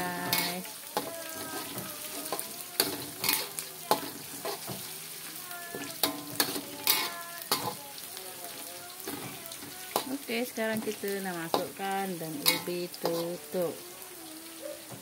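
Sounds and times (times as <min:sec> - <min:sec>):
metal spatula scraping wok: 0:00.0 - 0:05.0, 0:05.7 - 0:07.8, 0:08.4 - 0:13.8
food sizzling in hot oil: 0:00.0 - 0:15.0
spatula clinking against wok: 0:12.4 - 0:13.3.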